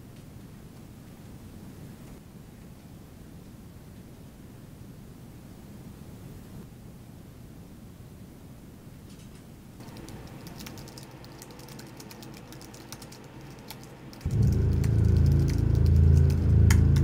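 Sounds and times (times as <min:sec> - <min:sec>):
laptop keyboard typing: 0:09.8 - 0:17.0
loud low drone: 0:14.3 - 0:17.0.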